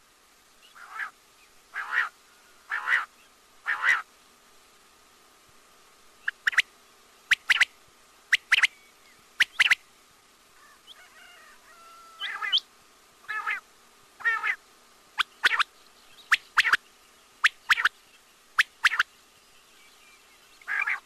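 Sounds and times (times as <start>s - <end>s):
quail calling: 0.7s - 4.1s, 6.2s - 6.7s, 7.3s - 7.7s, 9.4s - 9.8s, 10.6s - 13.6s, 14.2s - 14.6s, 15.2s - 16.8s, 17.4s - 17.9s, 18.6s - 19.1s, 20.6s - 21.0s.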